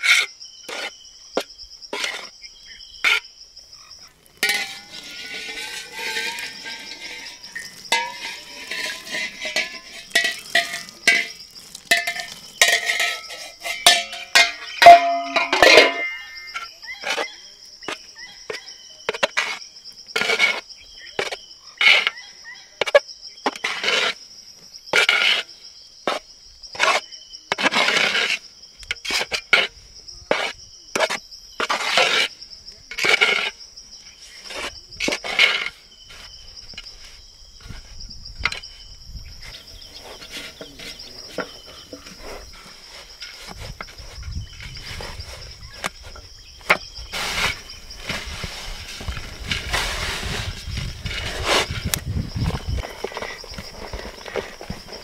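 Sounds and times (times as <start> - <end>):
insects chirring: 0.0 - 55.0
hands rasping mixture in metal pot: 4.4 - 17.2.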